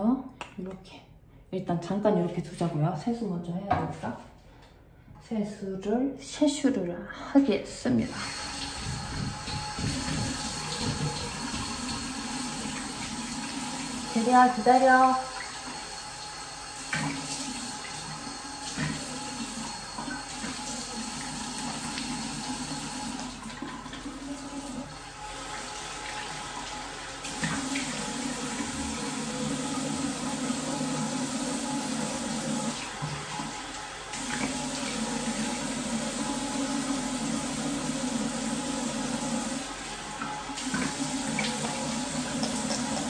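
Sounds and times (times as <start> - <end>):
face being washed with water: 8.1 - 43.0
tap running into sink: 8.3 - 14.2, 16.8 - 24.8, 40.2 - 43.0.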